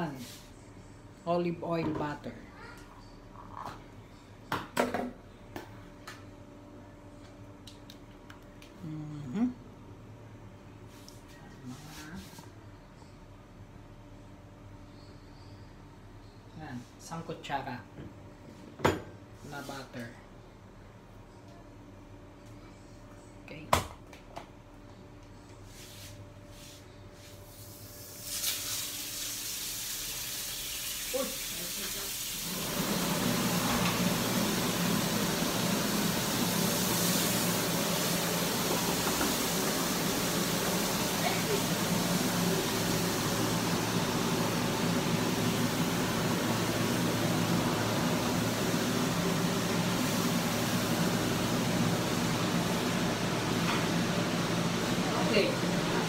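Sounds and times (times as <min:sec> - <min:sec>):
fan-like hum and hiss: 0:00.0 - 0:56.0
butter sizzling in a frying pan: 0:27.6 - 0:54.6.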